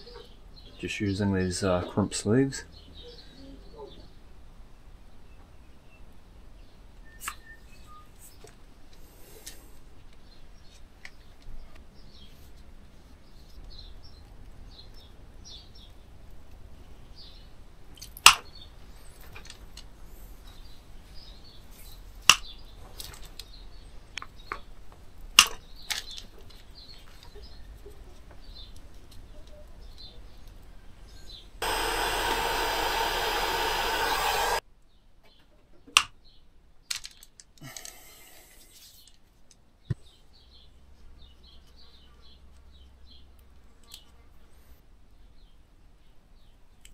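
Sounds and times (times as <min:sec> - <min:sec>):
loud steady hiss: 0:31.6 - 0:34.6.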